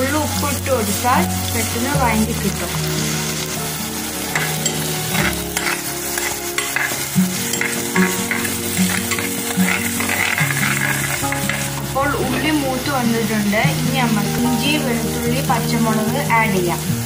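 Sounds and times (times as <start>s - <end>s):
onions sizzling in oil: 0.0s - 17.0s
spatula scraping a pan: 3.0s - 12.5s.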